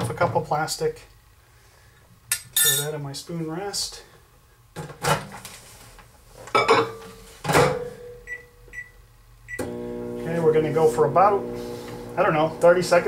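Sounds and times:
microwave keypad beeps: 8.3s - 8.9s.

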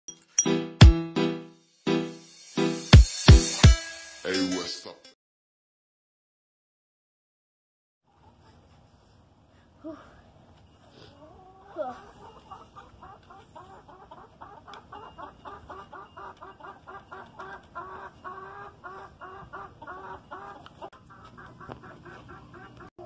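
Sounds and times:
chickens clucking: 11.0s - 23.0s.

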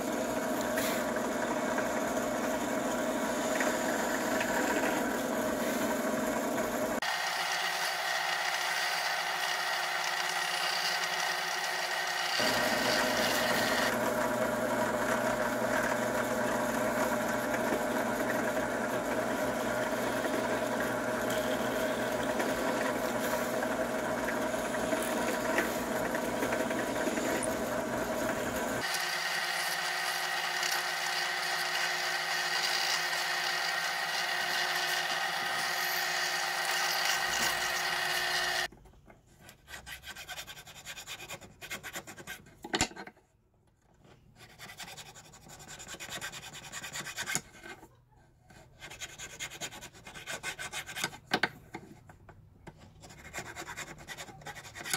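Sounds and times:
drill press motor hum: 0.0s - 38.7s
drill bit cutting wood: 7.0s - 38.7s.

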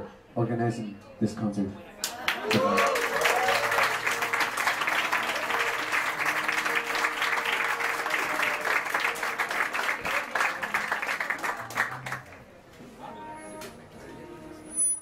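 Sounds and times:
audience applauding: 2.0s - 12.5s.

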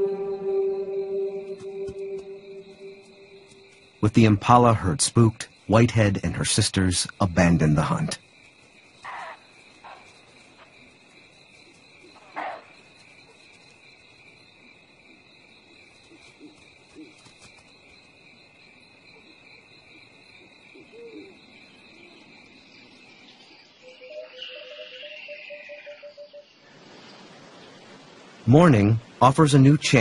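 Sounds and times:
music: 0.0s - 3.6s
insect chorus drone: 0.0s - 30.0s.

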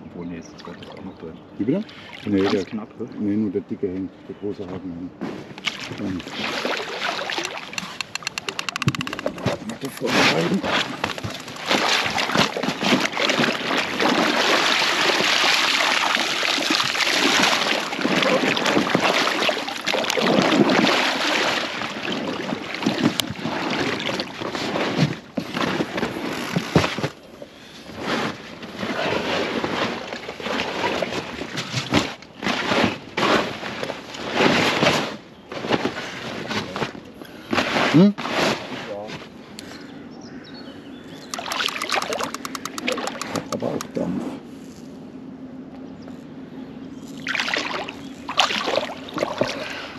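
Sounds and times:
water sloshing and splashing: 1.9s - 2.8s, 5.2s - 39.4s, 41.2s - 43.9s, 47.0s - 49.9s
wet plastic mat rustling: 5.2s - 39.4s.

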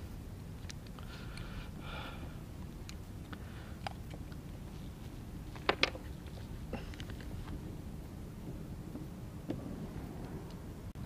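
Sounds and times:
steady low rumble: 0.0s - 11.0s
fishing tackle clicks and knocks: 5.5s - 7.6s.

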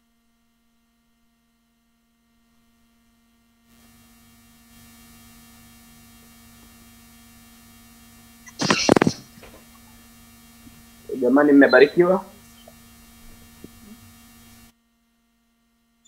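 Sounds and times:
electrical mains hum: 0.0s - 16.0s
loud burst of noise: 8.5s - 9.6s.

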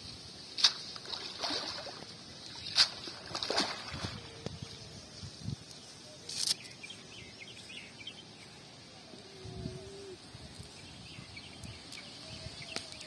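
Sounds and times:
water splashing and dripping: 0.0s - 4.7s.

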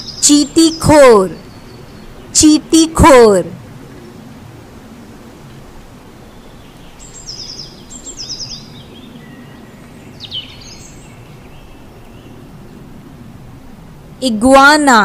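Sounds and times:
small birds chirping: 0.0s - 2.6s, 6.2s - 12.9s.

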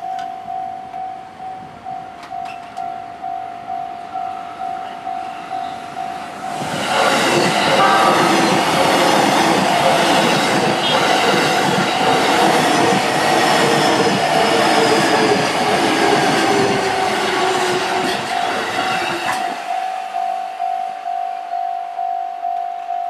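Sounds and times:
electric train passing on rails: 0.0s - 23.0s
level crossing bell ringing: 7.7s - 9.9s.

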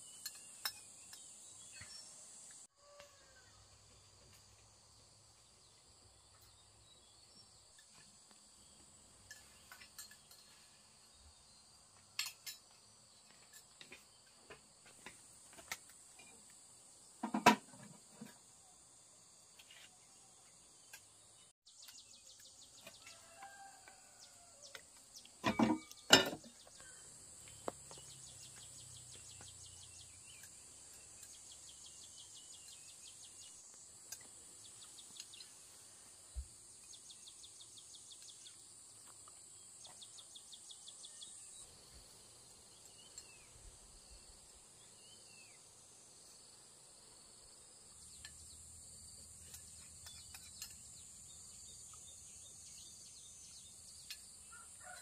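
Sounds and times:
insects chirring: 0.0s - 55.0s
bird chirps: 24.7s - 35.6s.

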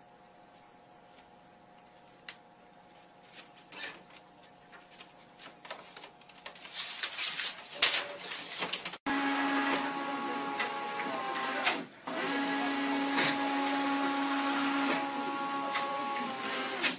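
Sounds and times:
paper rustling: 1.1s - 9.0s
inkjet printer running: 9.1s - 16.9s.

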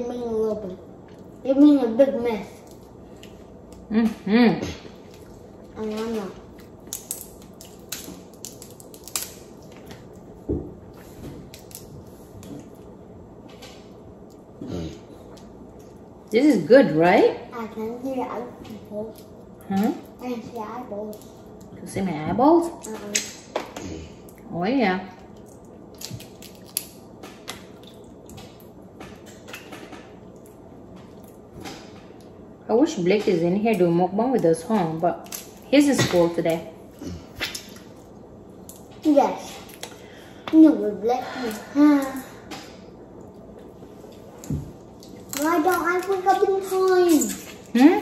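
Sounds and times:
wet squishing: 5.0s - 10.4s, 25.3s - 31.5s, 36.9s - 40.2s
crab shell cracking: 6.0s - 10.2s, 11.5s - 11.9s, 25.3s - 28.7s.

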